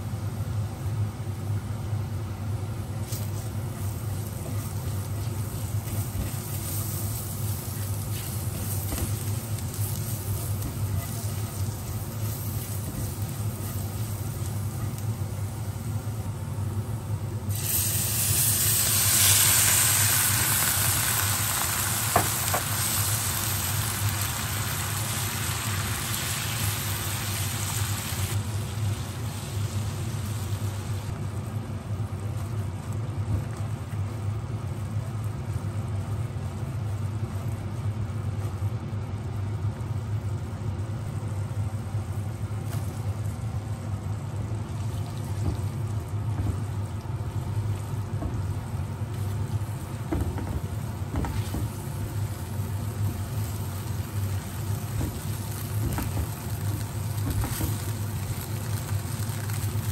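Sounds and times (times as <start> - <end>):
steady low hum: 0.0 - 59.9
sauce sizzling in hot oil: 3.0 - 31.2, 42.1 - 59.9.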